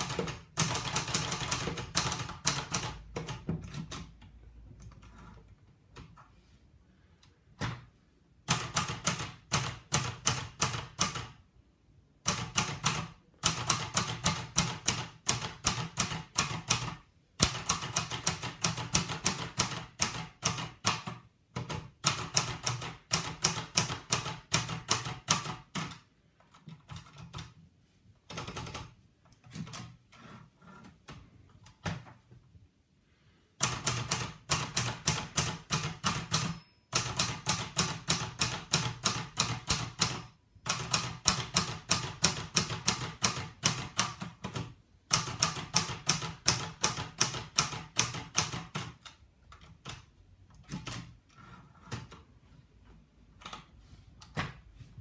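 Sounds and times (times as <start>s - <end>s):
typewriter keystrikes: 0.0s - 4.2s, 8.4s - 11.4s, 12.2s - 27.6s, 33.6s - 51.2s.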